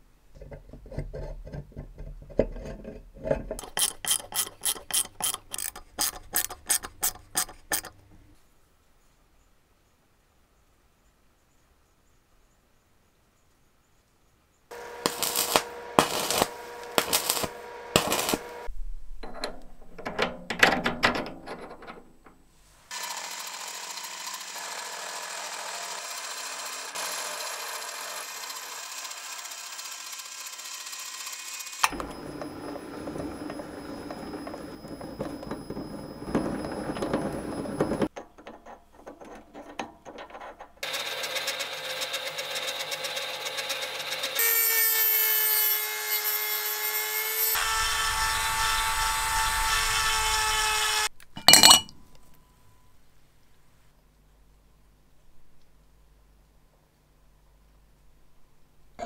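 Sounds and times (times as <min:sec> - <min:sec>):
rotary tool whining: 0:02.6 - 0:08.0, 0:14.7 - 0:18.7, 0:22.9 - 0:38.1
steel shaft clicking into chuck: 0:03.4 - 0:08.0
lathe cutting a thread: 0:03.6 - 0:07.9, 0:14.7 - 0:18.7, 0:22.9 - 0:38.1.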